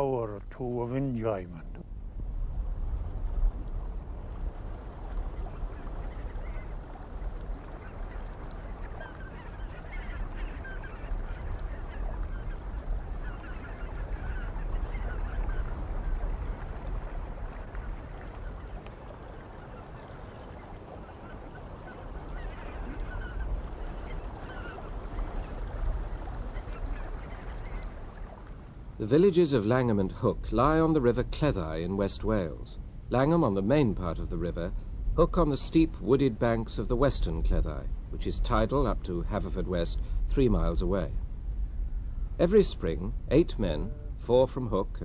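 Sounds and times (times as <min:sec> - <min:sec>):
steady low rumble: 0:00.0 - 0:19.3, 0:22.1 - 0:45.0
flock of birds calling: 0:04.6 - 0:28.4.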